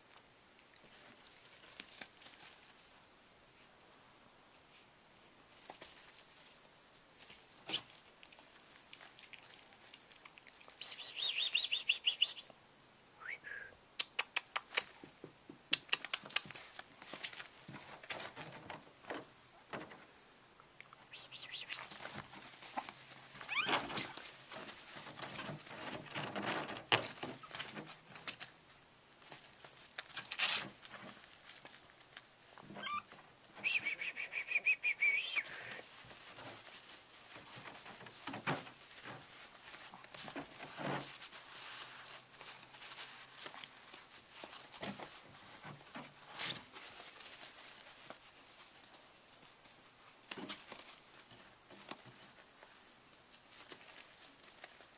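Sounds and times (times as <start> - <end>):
puppy paws pattering and scratching: 0.1 - 3.1, 4.5 - 12.2, 14.2 - 20.0, 20.8 - 34.0, 35.2 - 54.9
puppy claws tapping and scratching: 14.0 - 19.9
puppy whining: 23.4 - 24.2, 32.7 - 35.8.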